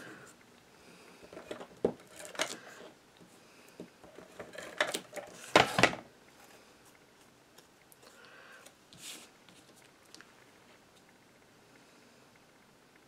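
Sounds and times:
scraping and rustling handling: 1.2s - 7.0s.

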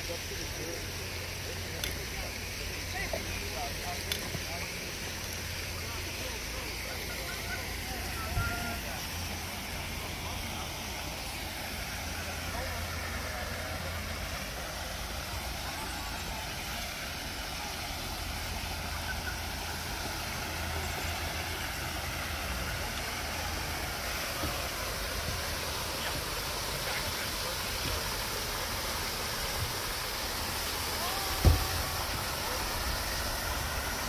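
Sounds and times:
waterfall splashing into pond: 0.0s - 34.0s
sharp thump: 31.4s - 31.7s.

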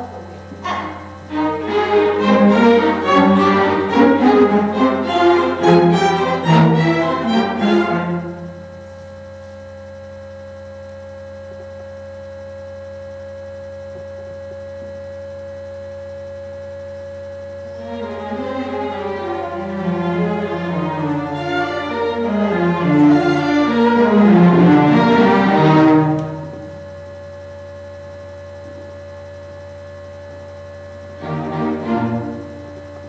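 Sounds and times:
steady hum: 0.0s - 33.0s
string orchestra playing: 0.6s - 8.5s, 17.8s - 26.5s, 31.2s - 32.6s.

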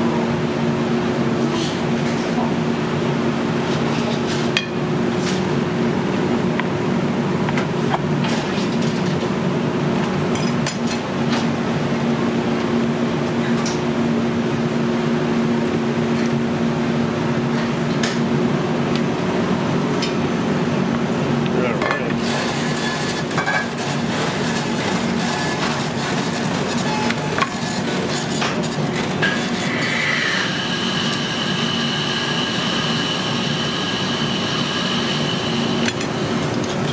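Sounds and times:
kitchen hum: 14.9s - 36.9s.

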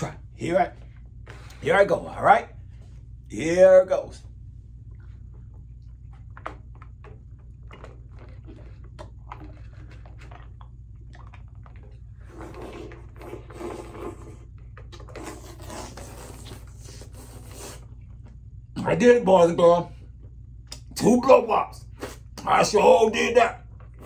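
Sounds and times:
steady low hum: 0.0s - 24.0s
wet mouth smacking and squelching: 4.9s - 13.3s, 20.6s - 20.9s.

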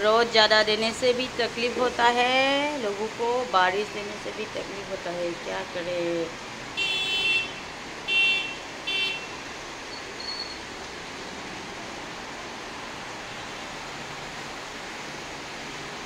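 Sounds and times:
heavy rain hissing: 0.0s - 16.0s
vehicle horn toots: 6.8s - 9.3s.

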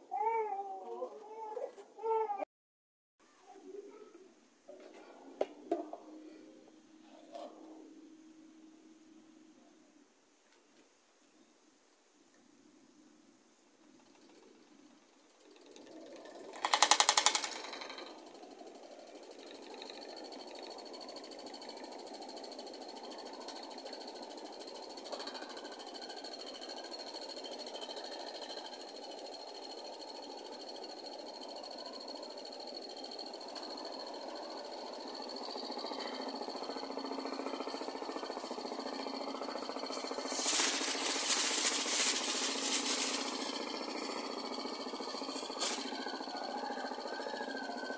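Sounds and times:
electric fan running: 13.8s - 47.9s
plastic bag fluttering: 37.3s - 46.0s.

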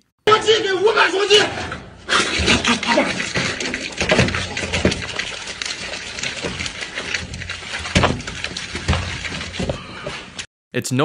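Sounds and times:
man chomping watermelon: 2.1s - 10.4s.

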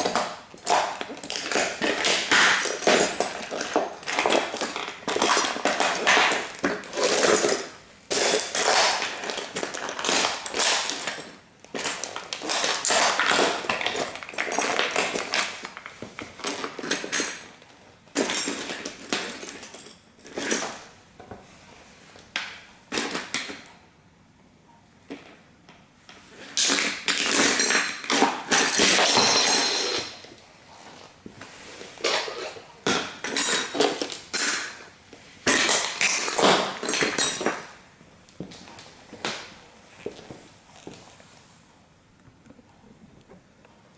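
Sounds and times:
metal and plastic crunching: 0.0s - 20.9s, 26.5s - 30.4s, 32.0s - 37.8s.

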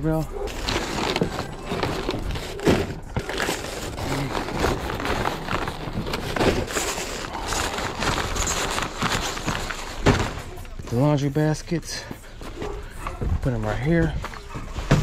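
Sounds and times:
plastic wrap crinkling: 0.1s - 11.2s.

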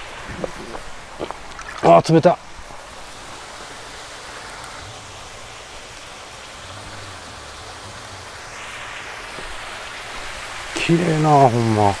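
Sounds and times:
water rushing along channel: 0.0s - 12.0s.

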